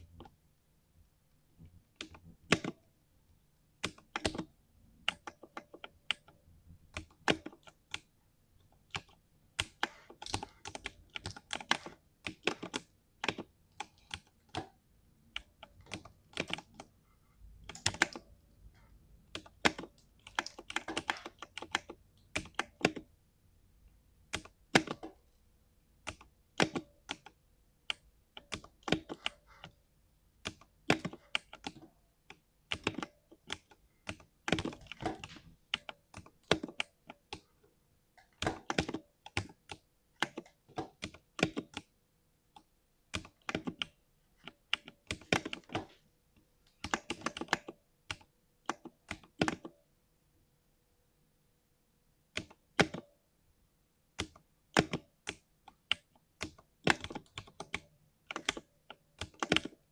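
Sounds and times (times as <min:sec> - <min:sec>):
computer mouse clicks: 0:01.9 - 0:02.8, 0:03.8 - 0:17.0, 0:17.6 - 0:18.4, 0:19.3 - 0:23.1, 0:26.0 - 0:29.8, 0:30.4 - 0:37.5, 0:38.2 - 0:41.9, 0:42.5 - 0:49.8, 0:52.3 - 0:53.2, 0:54.2 - 0:59.9
mechanical keyboard keys clicking: 0:19.3 - 0:23.1, 0:30.4 - 0:37.5, 0:38.2 - 0:41.9, 0:46.8 - 0:49.7, 0:54.2 - 0:59.9.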